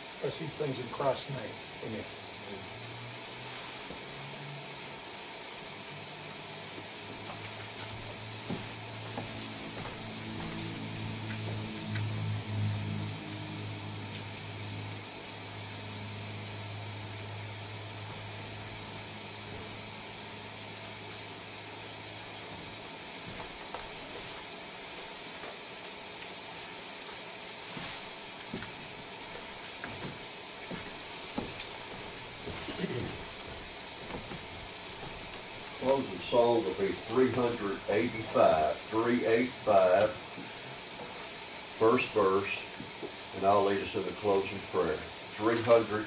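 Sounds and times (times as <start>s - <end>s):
room noise hiss: 0.0s - 46.0s
low steady hum: 6.0s - 25.5s.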